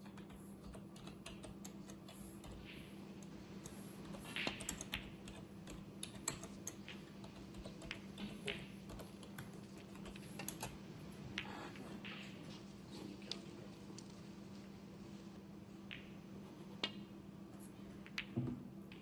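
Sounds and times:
keyboard typing: 0:00.0 - 0:10.8
faint steady hum: 0:00.0 - 0:19.0.

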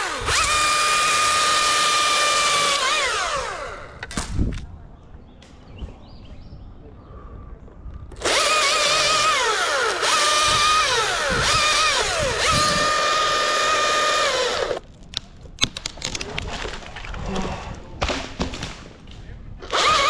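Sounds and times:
battery chainsaw whining: 0:00.0 - 0:04.1, 0:08.2 - 0:14.8, 0:19.6 - 0:20.0
sharp clicks and knocks: 0:14.8 - 0:16.8.

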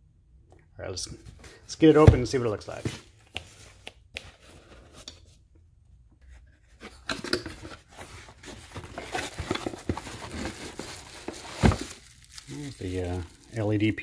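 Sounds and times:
bubble wrap rustling: 0:08.3 - 0:14.0.

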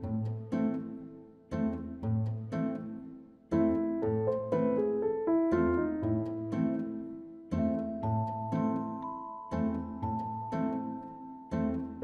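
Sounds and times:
struck notes: 0:03.6 - 0:07.4
held melody tone: 0:03.6 - 0:12.0.

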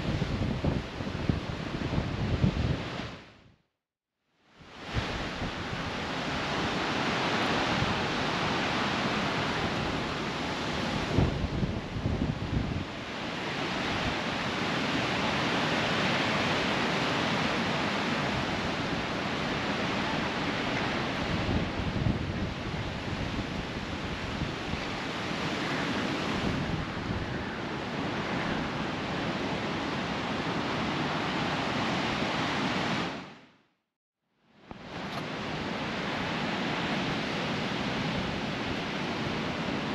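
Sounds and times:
wind buffeting microphone: 0:00.0 - 0:03.2, 0:04.7 - 0:15.8, 0:17.2 - 0:33.1
wind rushing through trees: 0:00.0 - 0:03.7, 0:04.3 - 0:33.8, 0:34.4 - 0:39.9.

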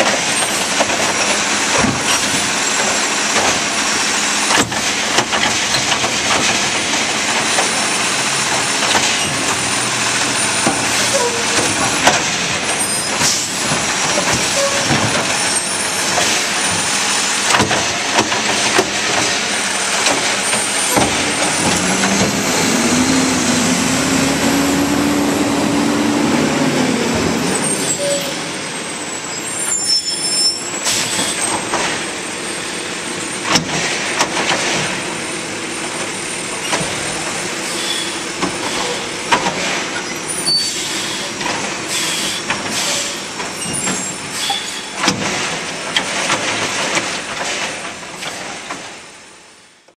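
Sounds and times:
diesel engine revving: 0:00.0 - 0:29.9
trash carts knocking and banging: 0:00.0 - 0:49.2
hydraulic arm running: 0:00.2 - 0:46.6
air brake hiss: 0:40.7 - 0:43.2.

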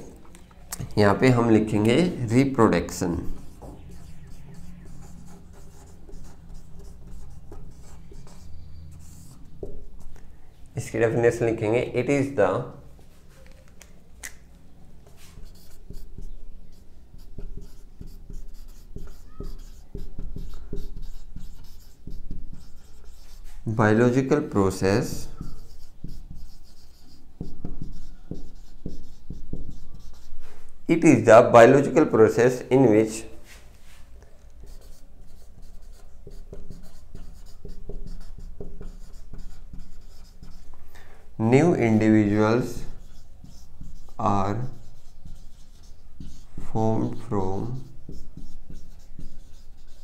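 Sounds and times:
marker writing on whiteboard: 0:00.2 - 0:10.2, 0:15.0 - 0:50.0
marker tip squeak: 0:19.0 - 0:20.7.

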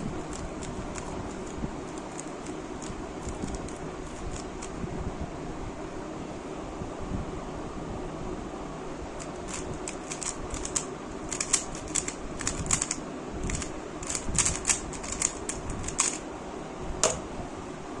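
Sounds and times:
steady background hiss: 0:00.0 - 0:18.0
puzzle cube clicking turns: 0:00.2 - 0:04.7, 0:09.2 - 0:16.2.

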